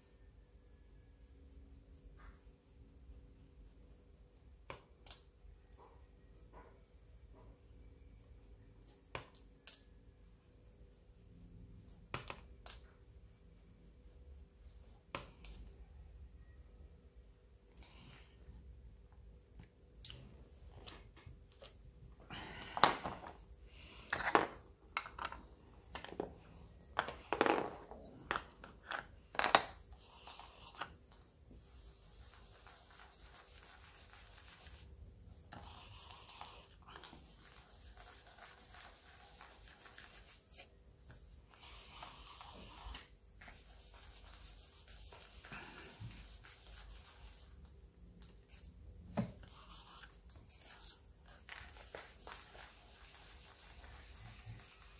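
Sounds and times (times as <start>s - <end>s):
foam tool rubbing on ink pad: 29.9s - 34.9s, 35.5s - 40.7s, 41.4s - 47.7s, 51.7s - 54.9s.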